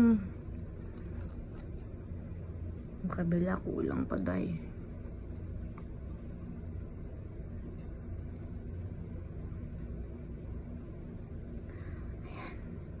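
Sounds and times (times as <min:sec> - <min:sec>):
low room hum: 0:00.0 - 0:13.0
fingertips rubbing skin: 0:04.9 - 0:11.7.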